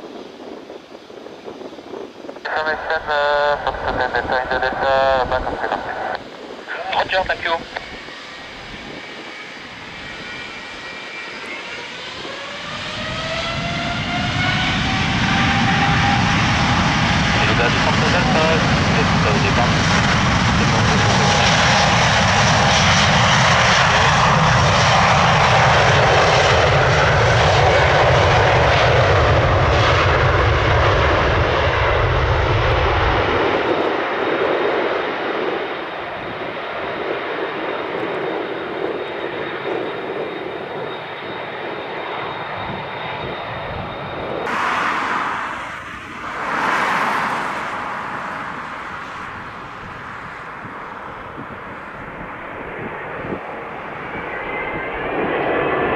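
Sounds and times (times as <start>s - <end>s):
jet engine roar at takeoff: 0.0s - 55.9s.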